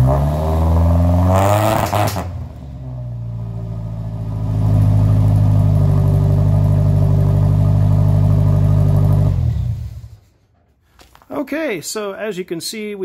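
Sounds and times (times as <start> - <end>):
car engine exhaust note: 0.0 - 10.3.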